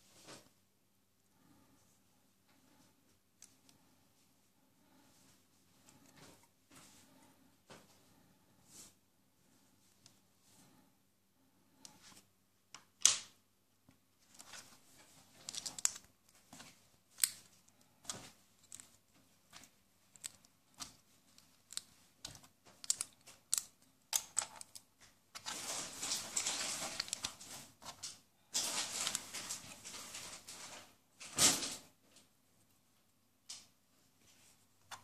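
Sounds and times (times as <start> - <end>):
plastic rustling: 14.2 - 31.8
plastic bricks clicking: 15.4 - 16.1, 20.1 - 24.8.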